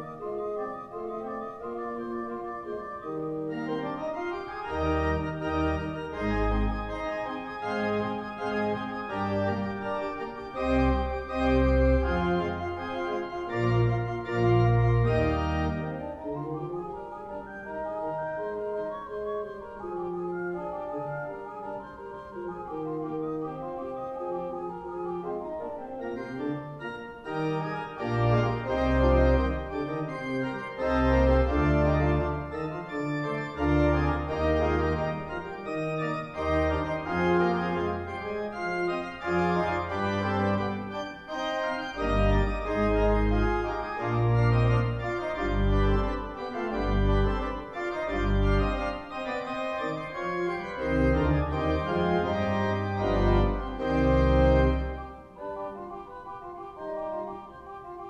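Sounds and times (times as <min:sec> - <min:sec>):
deep organ pedal notes: 0:00.0 - 0:58.0
pipe organ playing fast allegro: 0:00.0 - 0:58.0.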